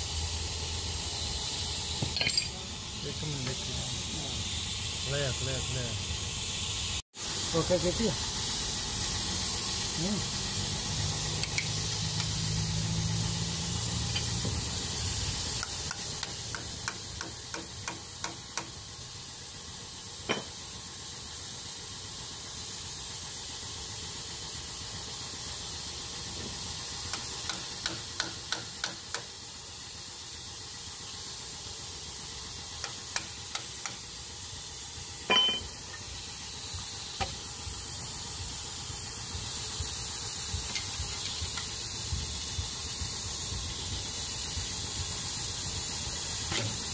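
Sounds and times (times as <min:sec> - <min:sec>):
steady hiss: 0:00.0 - 0:46.9
ringing metal clink: 0:02.1 - 0:02.6, 0:35.3 - 0:35.7.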